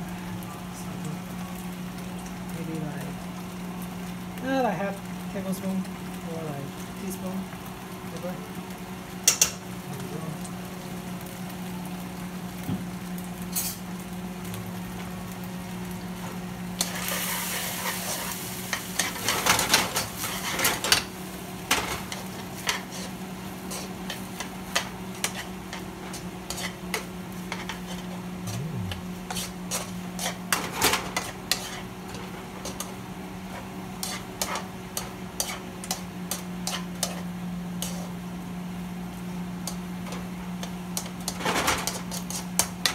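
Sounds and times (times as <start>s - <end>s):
food sizzling in a wok: 0.0s - 42.9s
tongs clicking and scraping pan: 9.2s - 9.6s, 21.7s - 38.1s, 39.6s - 42.9s
steady low hum: 15.4s - 42.9s.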